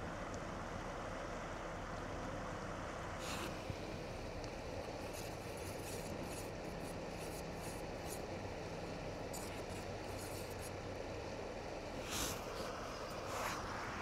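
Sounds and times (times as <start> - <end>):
faint scraping and rubbing: 3.2 - 3.8, 4.8 - 10.8, 11.9 - 14.0.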